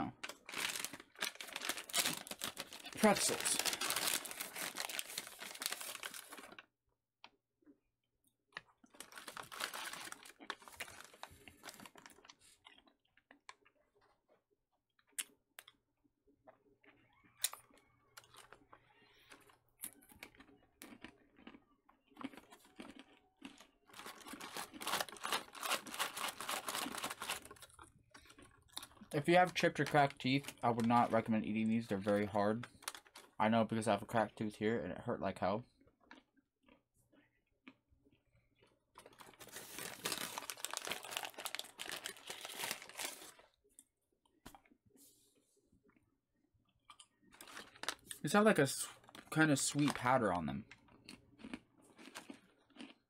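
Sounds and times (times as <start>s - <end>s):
hard pretzels crunching: 0.0s - 6.6s, 8.5s - 14.2s, 16.4s - 34.3s, 35.8s - 43.5s, 46.9s - 53.0s
plastic pouch crinkling: 0.2s - 6.6s, 8.6s - 12.4s, 23.9s - 33.4s, 39.0s - 43.5s, 47.4s - 48.3s.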